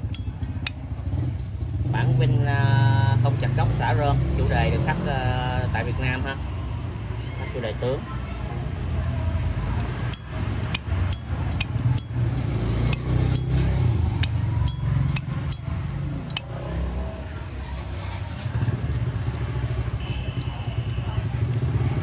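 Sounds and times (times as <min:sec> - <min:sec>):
low steady rumble: 0:00.0 - 0:01.0
lighter lid metal clacks: 0:16.3 - 0:16.5.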